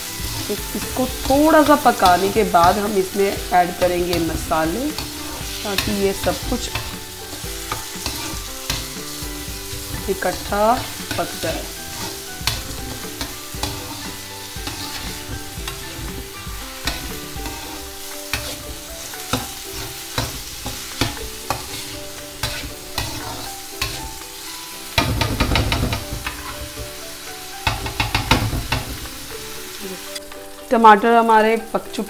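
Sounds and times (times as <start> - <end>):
spatula scraping metal pan: 0.0 - 27.0
vegetables sizzling in oil: 0.0 - 32.0.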